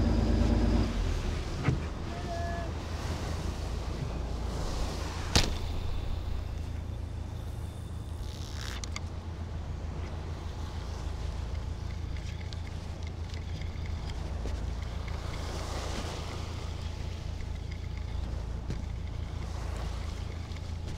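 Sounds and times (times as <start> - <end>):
boat hum: 0.0 - 20.9
wind: 0.0 - 20.9
fishing line crack: 5.2 - 6.7.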